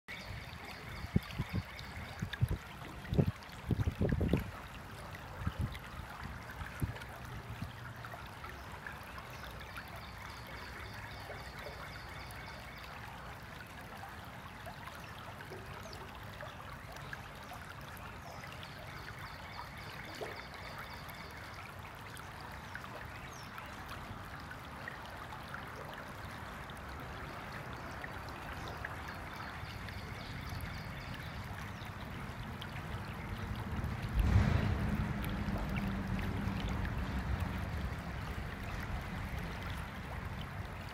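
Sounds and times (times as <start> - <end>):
stream water trickling: 0.1 - 40.9
loud low thump: 34.1 - 37.7.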